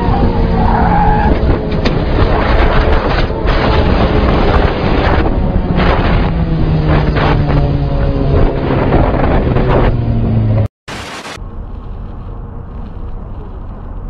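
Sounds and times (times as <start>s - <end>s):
wind buffeting microphone: 0.0s - 10.5s
engine hum: 0.0s - 14.0s.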